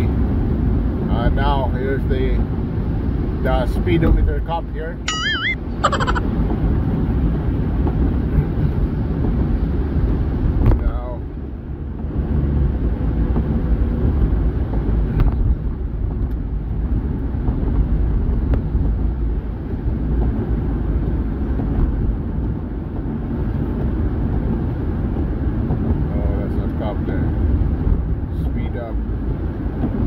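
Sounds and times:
car tyres and engine rumble: 0.0s - 30.0s.

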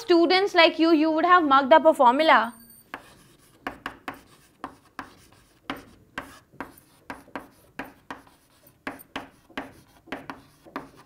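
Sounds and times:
chalk scratching on chalkboard: 2.9s - 11.0s.

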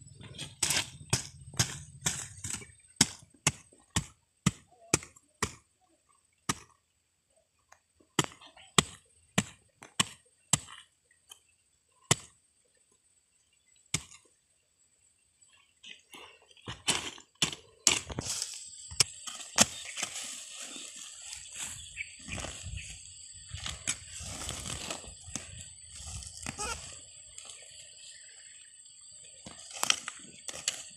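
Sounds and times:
hoe scraping soil: 0.0s - 2.9s, 16.6s - 27.8s
hand hoe chopping soil: 0.2s - 5.7s, 6.5s - 6.8s, 8.2s - 10.9s, 12.1s - 12.4s, 13.9s - 14.2s, 16.6s - 22.8s, 23.5s - 26.8s, 29.4s - 30.9s.

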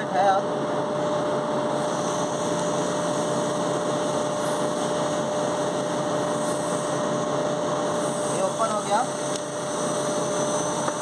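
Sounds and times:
machine whirring and humming: 0.0s - 11.0s.

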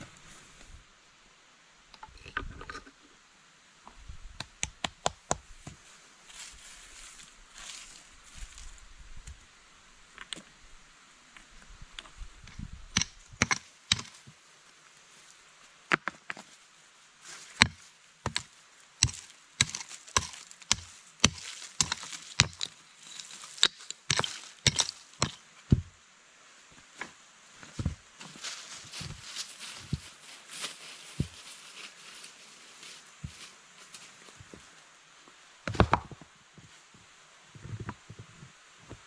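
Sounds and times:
hand tool chopping into soil: 12.9s - 14.2s, 17.6s - 25.9s.

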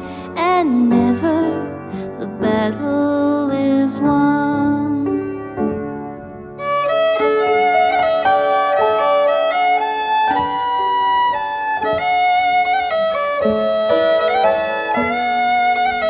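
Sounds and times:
fiddle melody: 6.6s - 16.0s.

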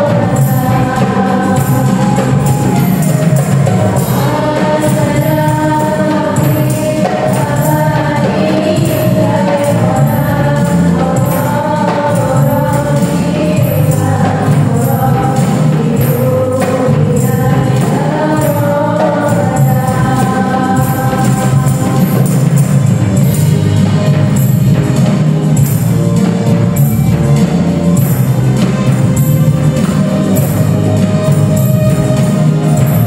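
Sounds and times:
jingling hand percussion: 0.0s - 33.0s
voices singing devotional song: 0.0s - 33.0s.

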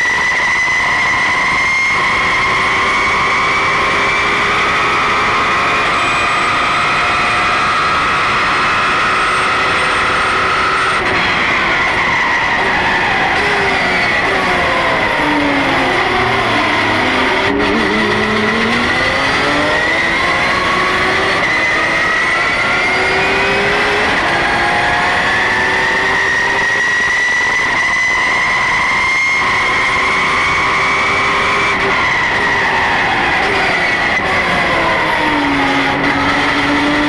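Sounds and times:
race car engine under load: 0.0s - 37.0s.

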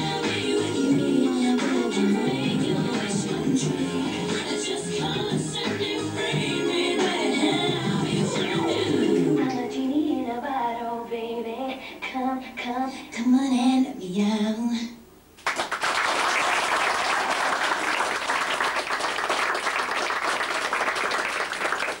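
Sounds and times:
woman singing a song: 0.0s - 15.1s
audience applause: 15.4s - 22.0s.

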